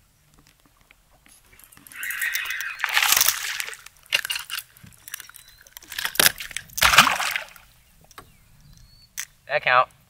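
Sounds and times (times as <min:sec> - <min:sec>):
fish splashing at water surface: 0:02.8 - 0:03.8, 0:06.1 - 0:07.7.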